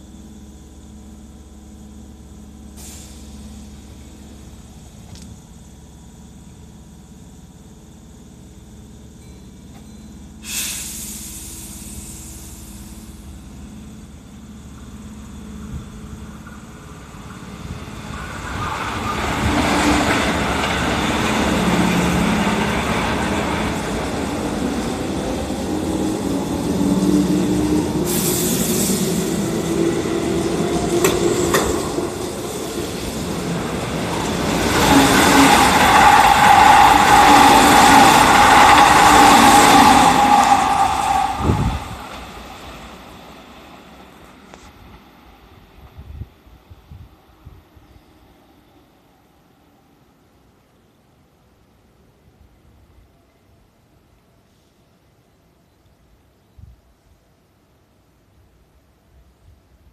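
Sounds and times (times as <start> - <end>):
train motor whine: 0.0 - 46.3
electric train humming: 0.0 - 54.2
wheel and rail noise: 0.0 - 55.2
hiss of air: 2.6 - 4.8, 10.4 - 13.8, 26.6 - 33.8.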